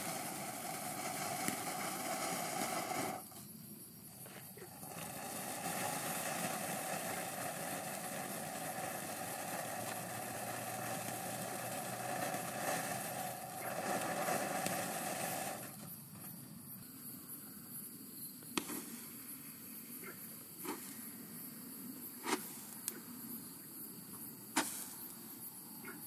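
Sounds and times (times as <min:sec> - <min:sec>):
firework fountain hissing: 0:00.0 - 0:16.2, 0:24.5 - 0:25.3.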